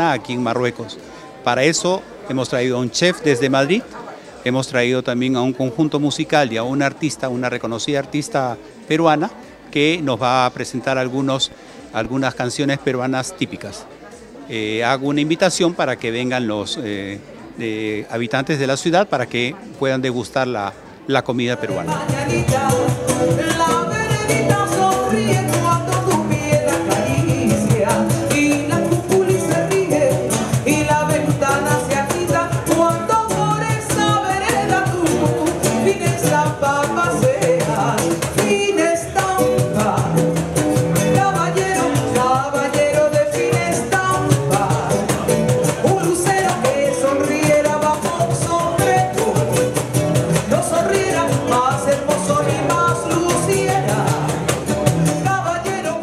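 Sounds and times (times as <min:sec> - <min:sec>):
acoustic guitar: 0:00.0 - 0:56.0
cajon: 0:21.2 - 0:56.0
woman singing into a microphone: 0:21.6 - 0:49.8, 0:50.4 - 0:56.0.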